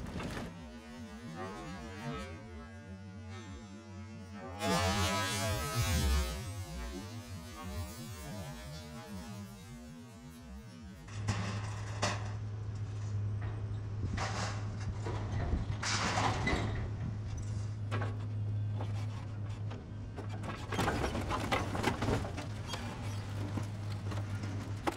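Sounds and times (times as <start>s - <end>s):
metal crunches and clanks: 0.0s - 2.1s, 11.0s - 24.9s.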